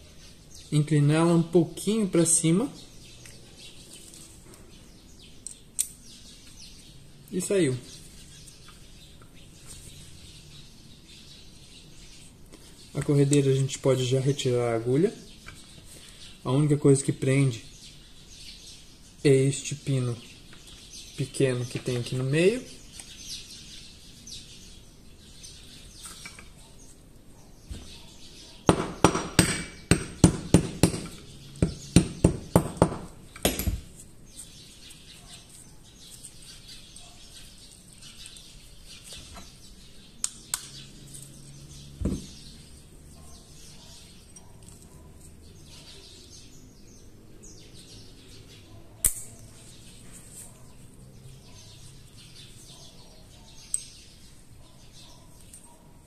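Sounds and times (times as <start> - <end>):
sharp metallic taps: 28.7 - 33.9.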